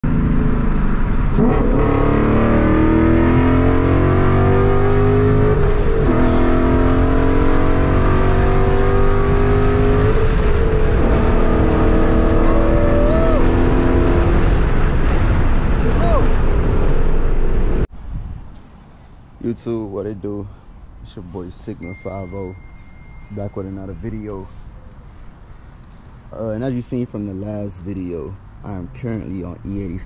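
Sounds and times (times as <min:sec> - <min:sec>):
car engine at full throttle: 0:00.0 - 0:17.9.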